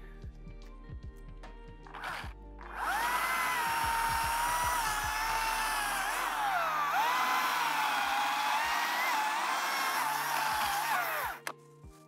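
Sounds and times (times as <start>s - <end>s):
electric chainsaw whining: 1.9s - 11.5s.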